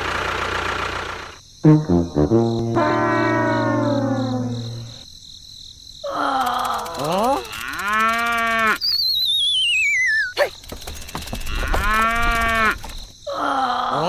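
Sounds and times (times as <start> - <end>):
falling wobbly whistle: 1.7 - 5.0, 8.8 - 10.4.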